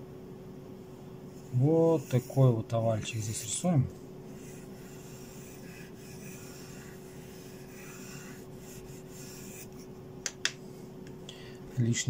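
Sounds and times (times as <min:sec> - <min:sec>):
pencil scratching on paper: 0:01.3 - 0:09.9.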